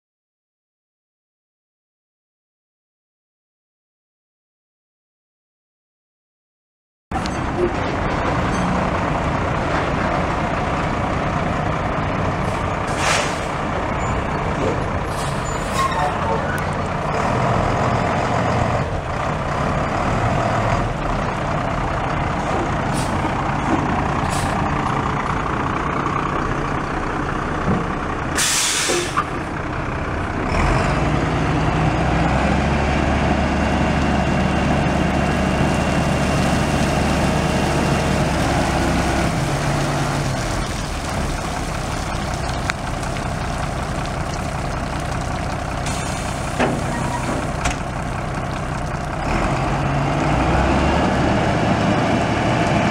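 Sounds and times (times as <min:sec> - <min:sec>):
diesel truck engine idling: 0:07.2 - 0:52.9
air brake hiss: 0:12.9 - 0:13.5, 0:28.4 - 0:29.3.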